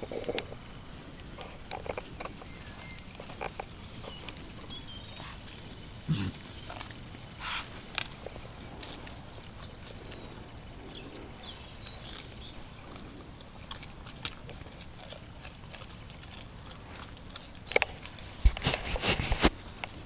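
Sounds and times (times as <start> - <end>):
faint steady hiss: 0.0 - 20.0
wild boars rooting and chewing: 0.0 - 20.0.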